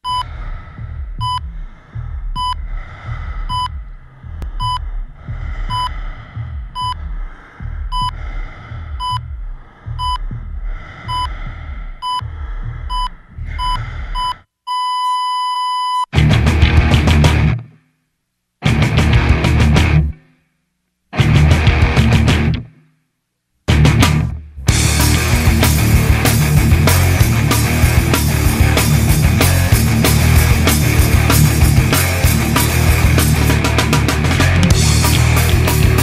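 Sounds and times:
heart monitor beeps: 0.0 - 0.3, 1.2 - 1.5, 2.4 - 2.6, 3.5 - 3.8, 4.6 - 4.9, 5.7 - 5.9, 6.8 - 7.0, 7.9 - 8.2, 9.0 - 9.3, 10.0 - 10.3, 11.0 - 11.3, 12.0 - 12.3, 12.9 - 16.1
low throbbing pulse: 0.0 - 14.3, 24.7 - 36.0.

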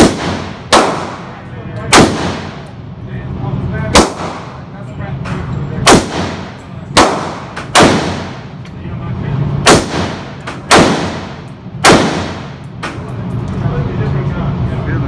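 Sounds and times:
rifle shots ringing indoors: 0.0 - 2.8, 3.9 - 4.6, 5.8 - 8.6, 9.6 - 13.3.

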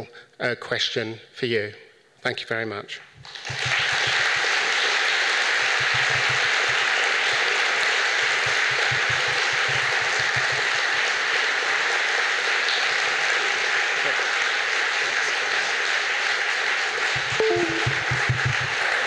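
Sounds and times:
audience applauding: 3.3 - 19.0.

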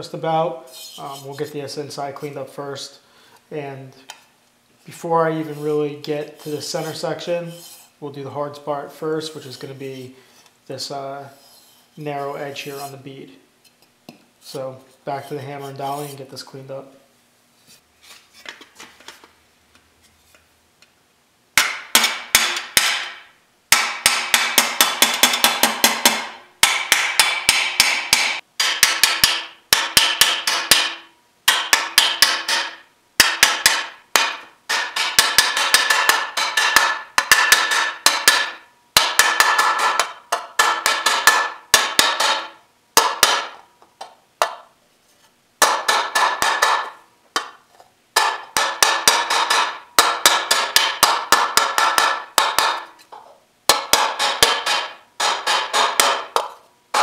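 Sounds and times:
hammer striking metal panel: 21.6 - 43.6, 45.6 - 47.6, 48.2 - 53.0, 53.7 - 57.0.

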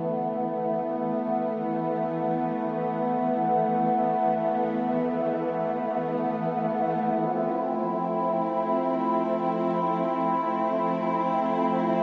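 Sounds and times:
ambient music sustained tones: 0.0 - 12.0.

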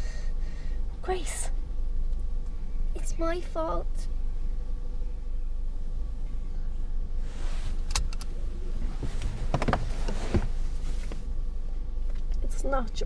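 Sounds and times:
car cabin rumble: 0.8 - 13.0
clothing rustling: 8.7 - 11.3.

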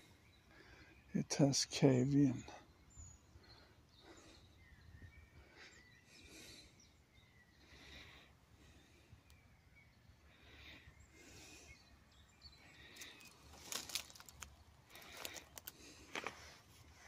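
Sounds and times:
footsteps through dry grass: 13.0 - 17.0.

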